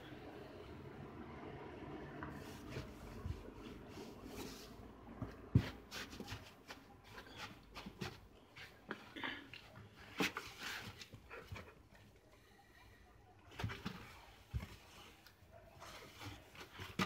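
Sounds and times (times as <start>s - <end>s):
cardboard and cloth rustling: 2.3s - 12.2s, 13.4s - 17.0s.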